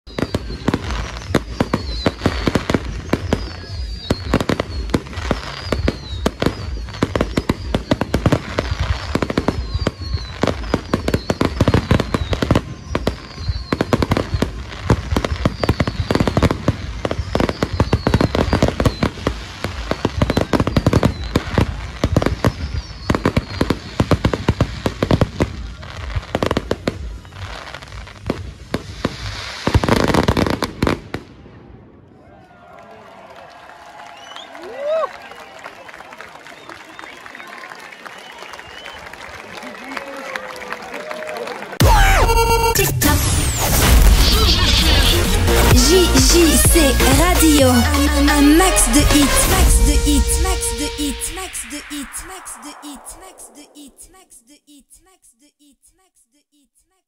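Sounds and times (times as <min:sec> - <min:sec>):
firework falling whistles: 0:00.1 - 0:25.2, 0:43.0 - 0:45.0
firework bursts and bangs: 0:00.1 - 0:32.3, 0:41.8 - 0:46.6.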